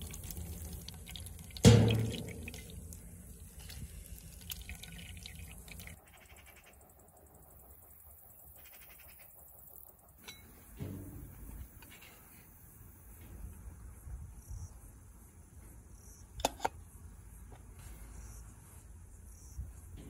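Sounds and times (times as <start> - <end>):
water dripping and splashing: 0.0 - 6.0.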